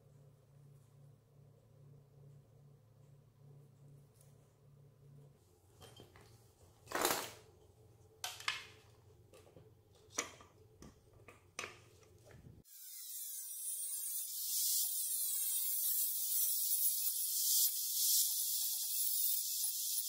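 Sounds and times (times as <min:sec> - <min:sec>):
angle grinder cutting metal: 0:12.7 - 0:20.0.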